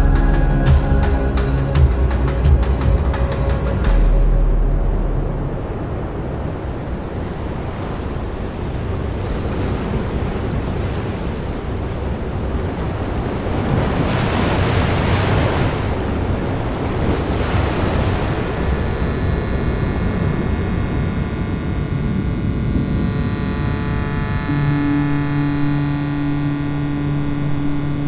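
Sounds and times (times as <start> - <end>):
surf breaking on rocky shore: 5.0 - 24.5.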